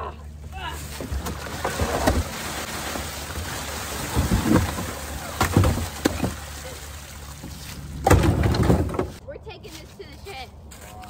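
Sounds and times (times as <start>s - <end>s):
slushy water pouring onto leaves: 0.8s - 7.9s.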